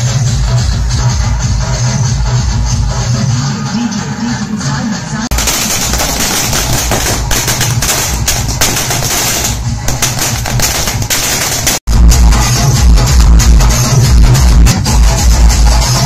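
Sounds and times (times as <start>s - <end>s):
firecrackers crackling: 5.3s - 11.9s.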